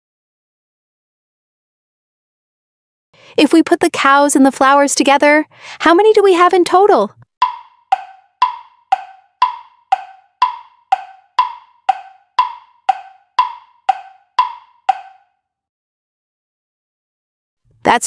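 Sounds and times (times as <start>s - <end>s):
wood-block tick-tock clicks: 7.2s - 15.3s.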